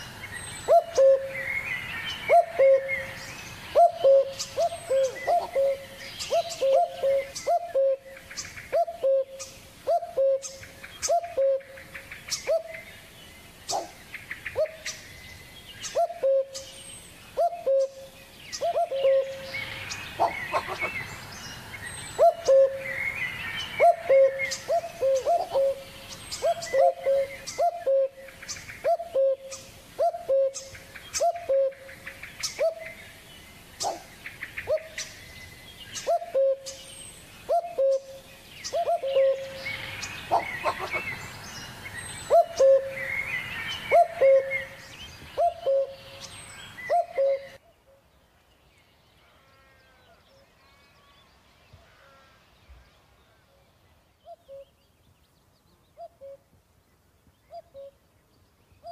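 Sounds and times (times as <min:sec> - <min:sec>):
low hooting bird call: 0:00.6 - 0:12.8, 0:15.8 - 0:16.7, 0:17.4 - 0:21.1, 0:22.1 - 0:33.0, 0:36.0 - 0:36.8, 0:37.5 - 0:41.2, 0:42.2 - 0:44.8, 0:45.4 - 0:48.0, 0:54.2 - 0:54.8.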